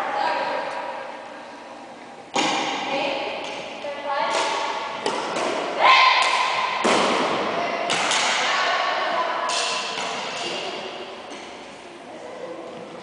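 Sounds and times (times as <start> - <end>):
racket hitting shuttlecock: 4.3 - 8.5.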